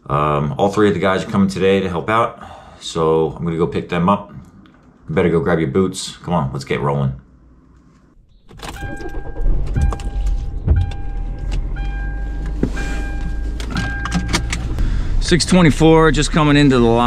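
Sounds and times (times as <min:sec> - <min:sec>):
car engine rumbling: 0:08.2 - 0:17.0
electronic warning chime: 0:08.6 - 0:14.6.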